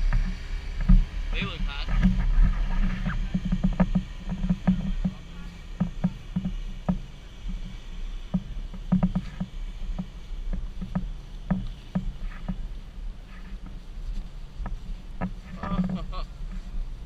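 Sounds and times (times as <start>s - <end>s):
blower fan humming: 0.0s - 17.0s
soft knocks and rustles: 0.0s - 17.0s
fabric rustling: 9.1s - 17.0s.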